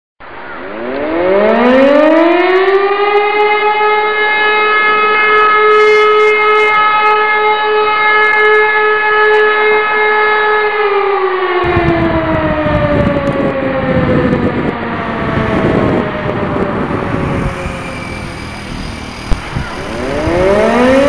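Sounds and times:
alarm siren wailing: 0:00.3 - 0:21.0
low rumbling noise: 0:11.6 - 0:21.0.

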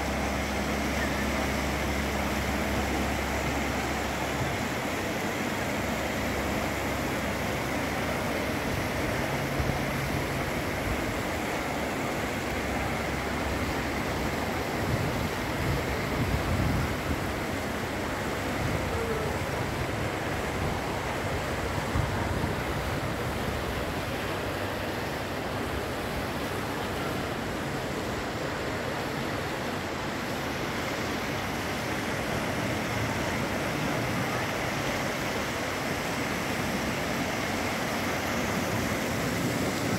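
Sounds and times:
wind on microphone: 0:14.2 - 0:17.6.

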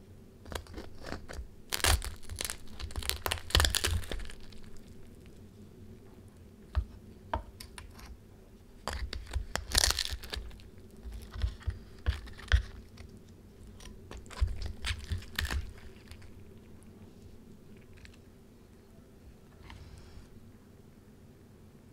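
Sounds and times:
crackling skin crunching: 0:00.4 - 0:06.1, 0:08.8 - 0:18.3
meat tearing: 0:00.5 - 0:05.4, 0:08.9 - 0:16.8.

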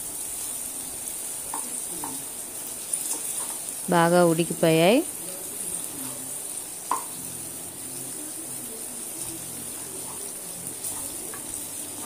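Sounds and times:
vegetables sizzling in oil: 0:00.0 - 0:12.0
spatula stirring in pan: 0:00.2 - 0:03.9, 0:05.1 - 0:12.0
spatula knocking against pan: 0:06.9 - 0:07.1.

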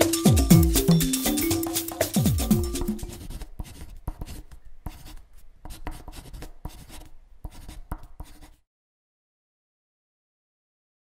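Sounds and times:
pen scratching and tapping on paper: 0:02.2 - 0:08.6.

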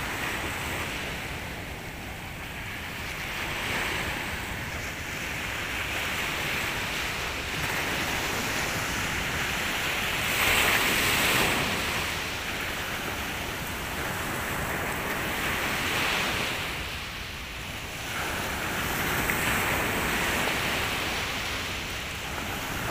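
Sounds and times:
surf washing up a beach: 0:00.0 - 0:22.9.

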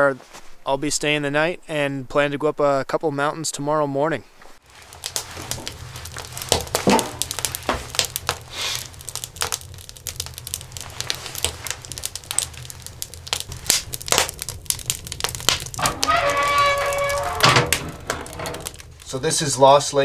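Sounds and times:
wood fire crackling: 0:04.6 - 0:20.0.

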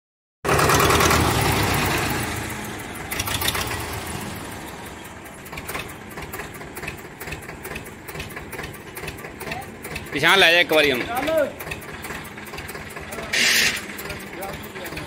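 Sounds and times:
engine running: 0:00.4 - 0:15.0
metallic clicks and clanks: 0:04.6 - 0:15.0.

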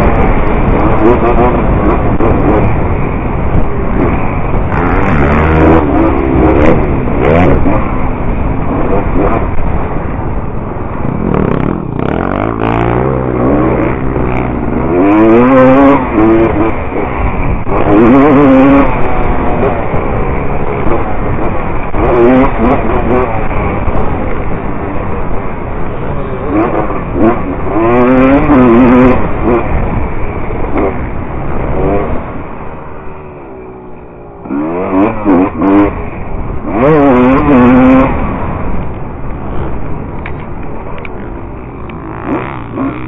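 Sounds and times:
dirt bike engine revving: 0:00.0 - 0:43.0.

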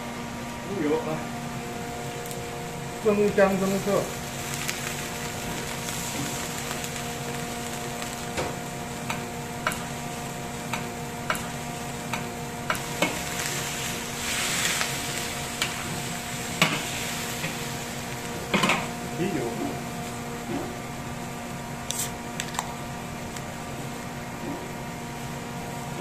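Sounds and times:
steady low hum: 0:00.0 - 0:26.0
meat sizzling: 0:03.1 - 0:19.6.

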